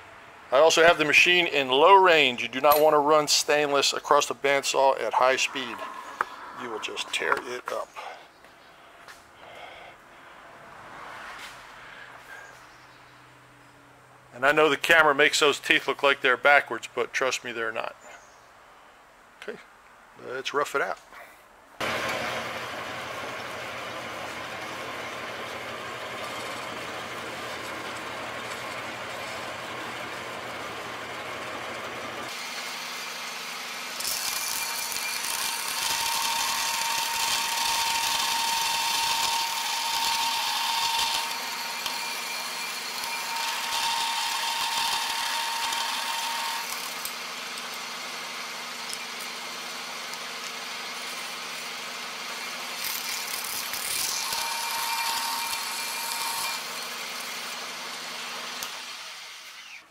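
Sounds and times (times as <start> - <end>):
bandsaw machine hum: 2.8 - 7.8, 21.8 - 59.9.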